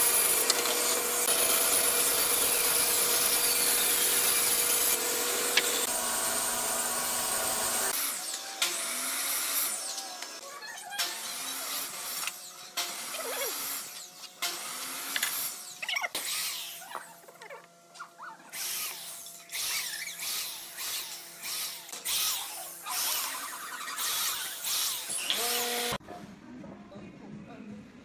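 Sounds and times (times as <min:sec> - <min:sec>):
electric drill boring into wood: 0:00.0 - 0:10.3, 0:18.6 - 0:26.0.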